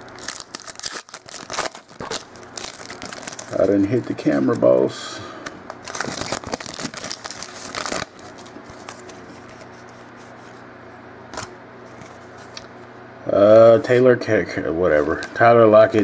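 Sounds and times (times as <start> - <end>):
foil wrapper tearing and crinkling: 0.0 - 4.6, 5.7 - 10.4
cards being handled: 5.7 - 10.7, 14.9 - 16.0.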